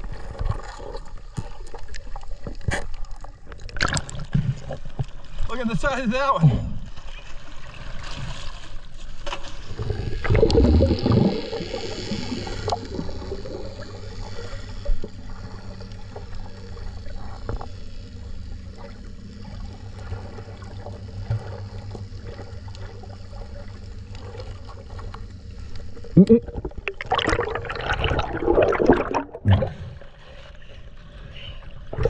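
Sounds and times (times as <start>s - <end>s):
muffled underwater rumble: 0.0s - 32.0s
underwater splashing and gurgling: 0.0s - 32.0s
small underwater clicks: 0.2s - 5.4s, 9.2s - 27.3s.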